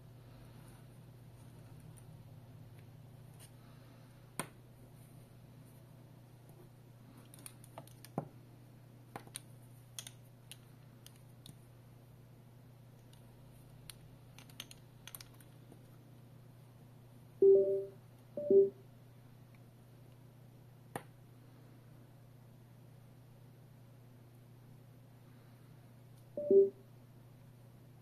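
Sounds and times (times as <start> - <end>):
plastic earphone parts clicking: 13.9 - 15.6
short electronic beeps: 17.4 - 18.8, 26.4 - 26.8.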